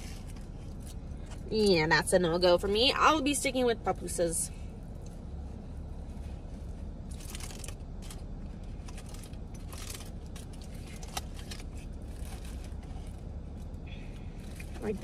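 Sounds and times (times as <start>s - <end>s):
steady low hum: 0.0s - 15.0s
aluminium foil crinkling: 7.1s - 13.4s.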